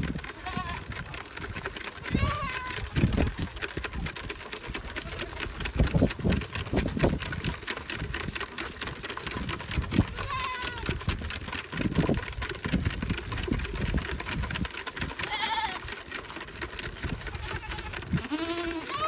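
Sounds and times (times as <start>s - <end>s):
hoof clicks and scuffles: 0.0s - 19.0s
goat kids bleating: 0.3s - 1.0s, 2.1s - 2.8s, 4.9s - 5.5s, 10.1s - 10.9s, 15.2s - 15.9s, 17.2s - 19.0s.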